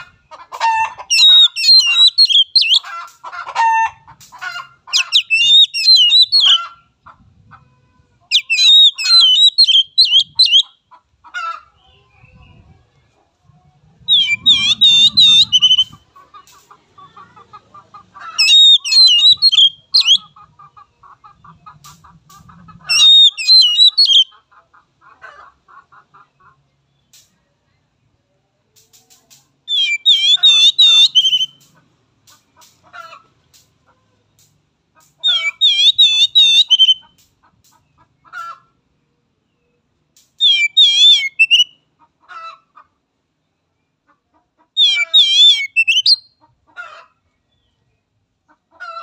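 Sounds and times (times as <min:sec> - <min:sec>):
bird singing whistled phrases: 0:01.1 - 0:02.8, 0:05.0 - 0:06.6, 0:08.3 - 0:10.7, 0:14.1 - 0:16.0, 0:18.4 - 0:20.2, 0:22.9 - 0:24.3, 0:29.7 - 0:31.6, 0:35.3 - 0:37.0, 0:40.4 - 0:41.8, 0:44.8 - 0:46.3
rapid low chattering: 0:13.7 - 0:17.7.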